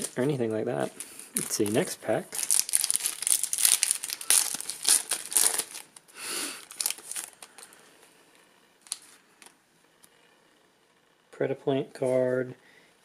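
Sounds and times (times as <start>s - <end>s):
foil wrapper tearing and crinkling: 1.4s - 7.7s.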